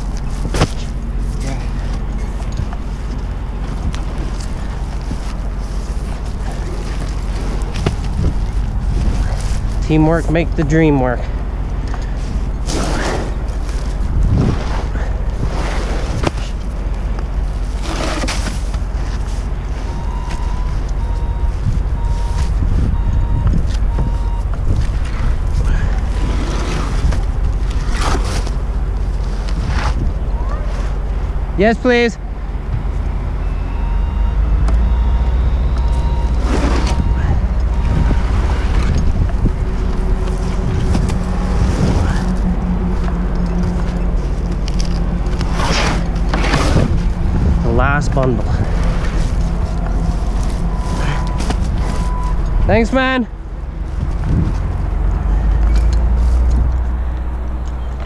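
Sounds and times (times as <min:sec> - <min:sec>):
wind buffeting microphone: 0:00.0 - 0:17.6, 0:18.8 - 0:28.0, 0:34.5 - 0:58.0
low rumble: 0:00.0 - 0:17.9, 0:32.2 - 0:58.0
truck engine running: 0:00.0 - 0:58.0
warning beeper beeping: 0:19.8 - 0:24.6, 0:33.1 - 0:45.3, 0:47.0 - 0:53.3.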